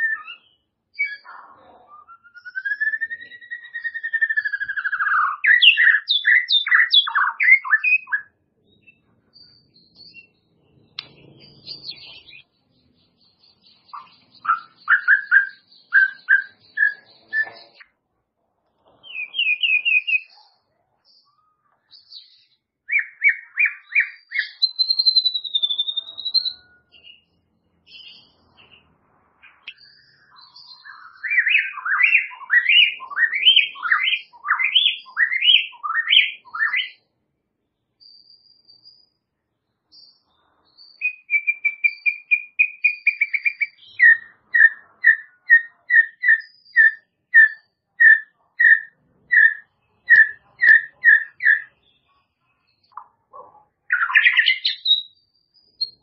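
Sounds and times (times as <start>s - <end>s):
songbird singing: 0.0s - 18.0s, 18.7s - 56.0s.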